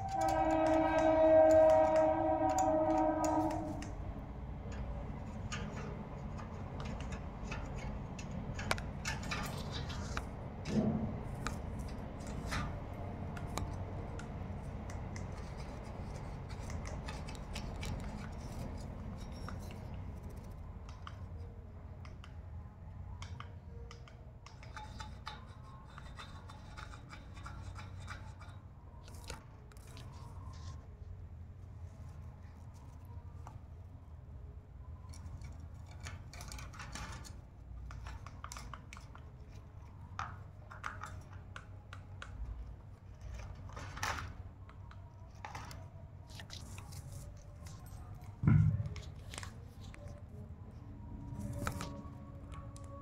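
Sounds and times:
parrot beak clicking and crunching: 0:13.3 - 0:21.4, 0:23.2 - 0:30.7.

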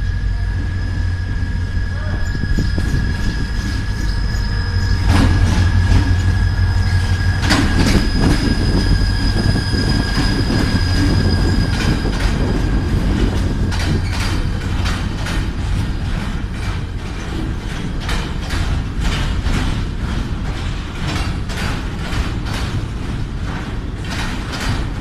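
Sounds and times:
high-pitched whine: 0:00.0 - 0:14.8
locomotive engine drone: 0:00.0 - 0:25.0
wheels clanking over rails: 0:00.0 - 0:25.0.

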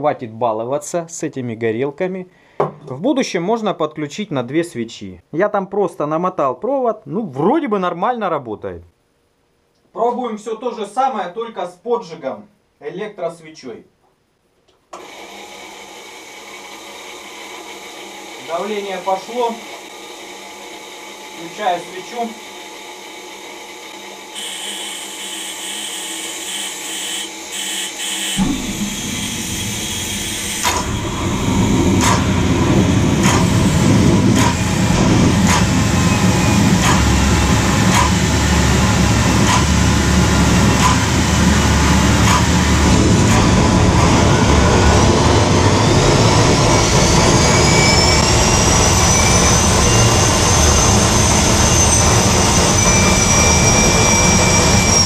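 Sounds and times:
turbine whine rising in pitch: 0:17.6 - 0:55.0
gas turbine combustion rumble: 0:28.4 - 0:55.0.

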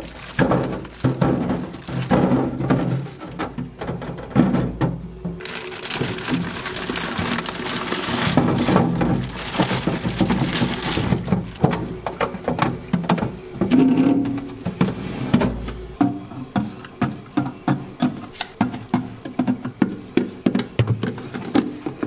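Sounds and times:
plastic bag crinkling: 0:00.0 - 0:03.4, 0:05.4 - 0:11.9.

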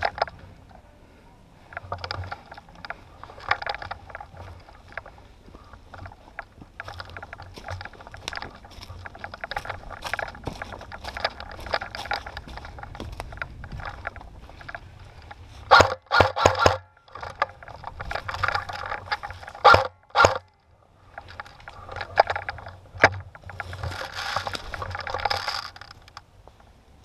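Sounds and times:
footsteps crunching through dry leaves: 0:02.4 - 0:15.7, 0:23.5 - 0:25.8.

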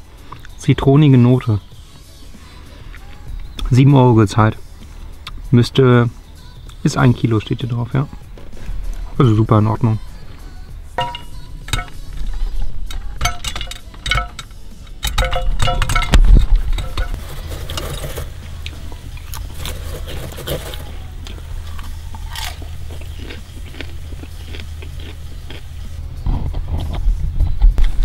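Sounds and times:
steady low hum: 0:00.0 - 0:28.0
metal pot and lid clinking: 0:11.0 - 0:20.9
popcorn crunching and rustling: 0:15.2 - 0:27.1.

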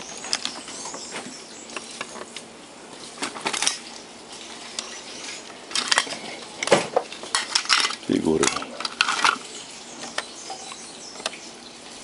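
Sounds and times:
small tools clicking and tapping: 0:05.7 - 0:11.4.

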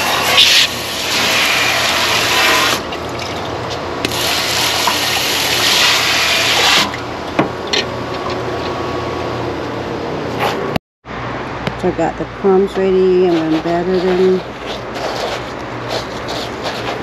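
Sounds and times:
sprayer water on cutting board: 0:00.0 - 0:02.8, 0:04.1 - 0:06.9.

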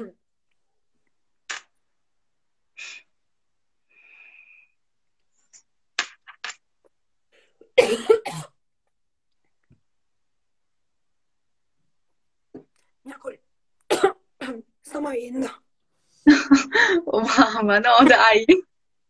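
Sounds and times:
person's sharp breathy bursts: 0:02.8 - 0:03.2.

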